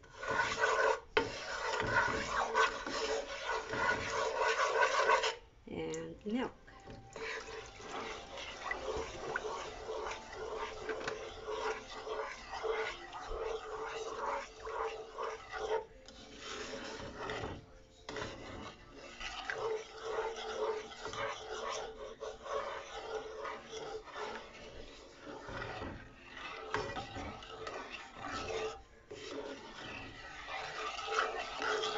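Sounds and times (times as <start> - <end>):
wooden spoon scraping a pan: 0.0 - 5.4, 6.3 - 31.9.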